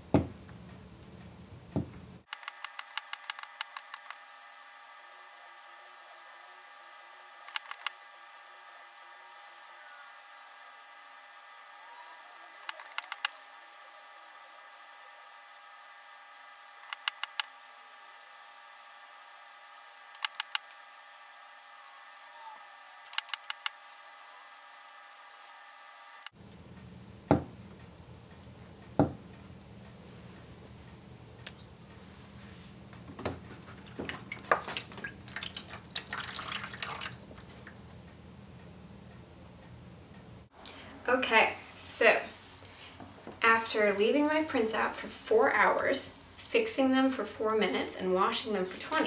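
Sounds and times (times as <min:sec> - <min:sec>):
steady hum: 0:00.0 - 0:49.0
liquid splashing: 0:33.9 - 0:37.8
liquid streaming and dripping: 0:33.9 - 0:37.8.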